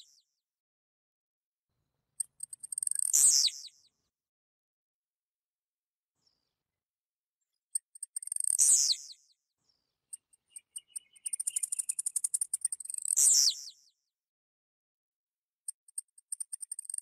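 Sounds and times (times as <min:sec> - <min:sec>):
bird clicks and ticks: 0:02.2 - 0:03.1, 0:07.8 - 0:08.6, 0:10.2 - 0:13.2, 0:15.7 - 0:17.0.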